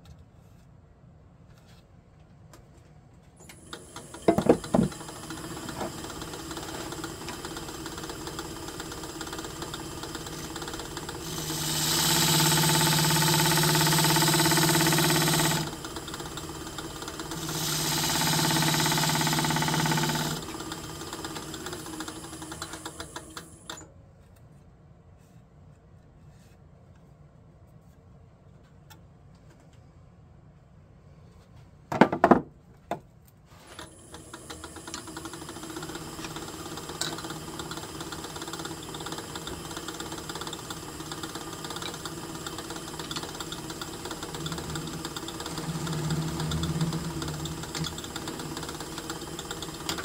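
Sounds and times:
wood lathe humming: 0:03.7 - 0:23.6, 0:34.1 - 0:50.0
gouge cutting spinning wood: 0:04.1 - 0:23.2, 0:34.8 - 0:50.0.

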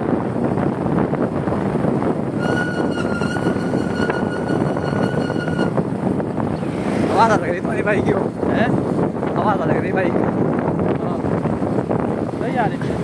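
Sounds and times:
motorbike road noise: 0:00.0 - 0:13.0
wind rushing over microphone: 0:00.0 - 0:13.0
steady high tone: 0:02.4 - 0:05.8.

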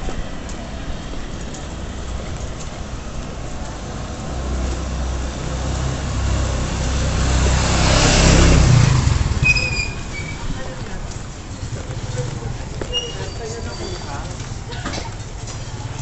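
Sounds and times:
street noise: 0:00.0 - 0:16.0
motorcycle engine approaching: 0:00.6 - 0:12.9.

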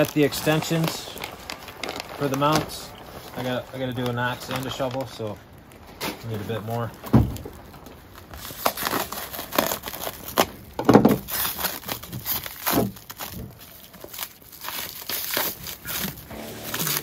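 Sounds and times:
plastic wrapping crinkling: 0:00.0 - 0:17.0.

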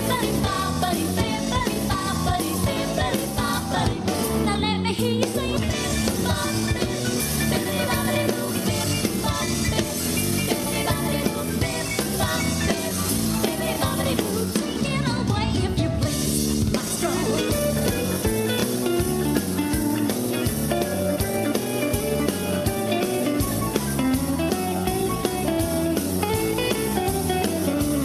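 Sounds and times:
upbeat dance music: 0:00.0 - 0:15.6, 0:16.7 - 0:18.8.

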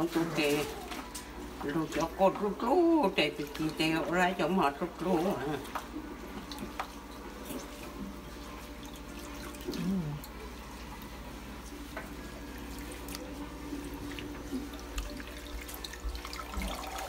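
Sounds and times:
water splashes and drips: 0:12.6 - 0:17.0.

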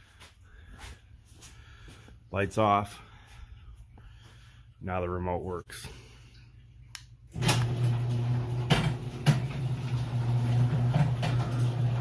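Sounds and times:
garage door opener motor: 0:07.3 - 0:12.0.

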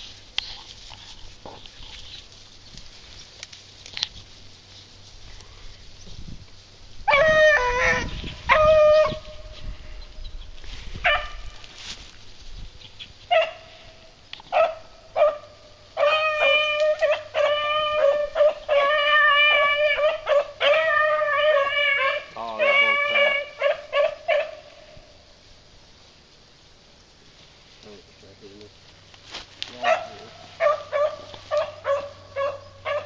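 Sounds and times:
beagles baying and howling: 0:07.0 - 0:11.7, 0:13.2 - 0:25.2, 0:29.7 - 0:33.0.

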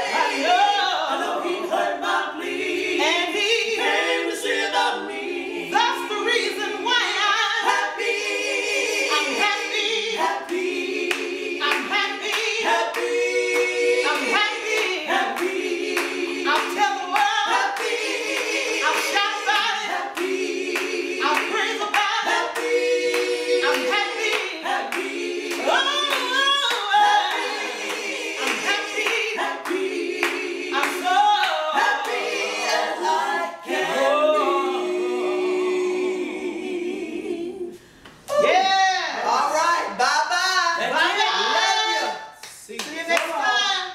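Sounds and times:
women singing gospel a cappella: 0:00.0 - 0:43.9
hand claps: 0:10.5 - 0:32.2.

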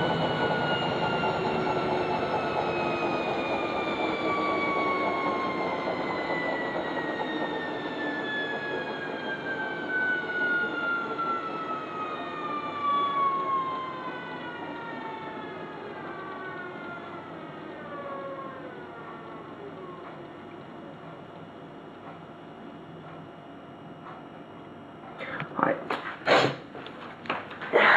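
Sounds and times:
washing machine drum rushing: 0:00.0 - 0:12.0
washing machine motor whine: 0:00.0 - 0:27.9.

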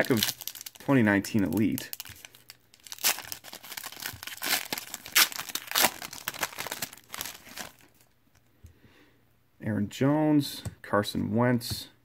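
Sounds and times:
foil wrapper ripping: 0:00.0 - 0:00.8, 0:01.4 - 0:07.9
foil wrapper crackling: 0:00.0 - 0:08.0.

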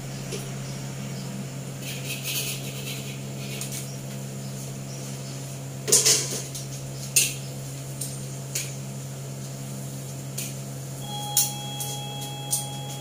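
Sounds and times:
low hum: 0:10.9 - 0:13.0.

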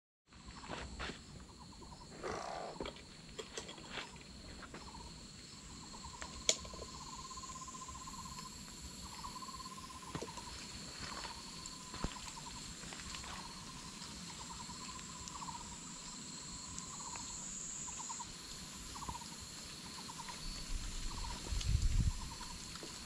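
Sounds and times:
insects trilling and buzzing: 0:00.3 - 0:23.0
pulsed insect trill: 0:00.4 - 0:23.0
scattered ticks: 0:11.3 - 0:20.4.

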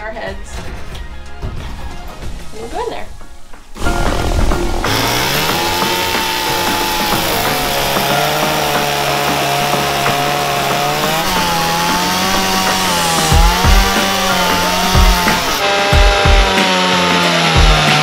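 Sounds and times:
low thumps: 0:00.6 - 0:16.6
chainsaw cutting log: 0:03.8 - 0:18.0.

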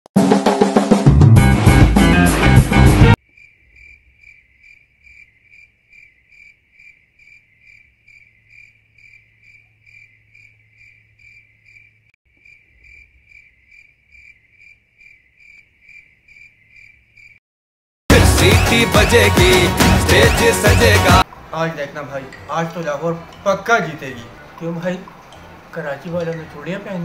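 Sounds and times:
crickets chirping: 0:03.2 - 0:17.4.

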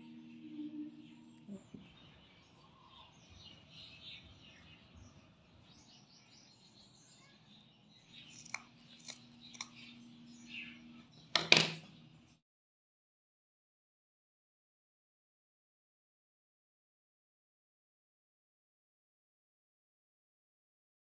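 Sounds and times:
scissors snipping yarn: 0:08.3 - 0:09.8.

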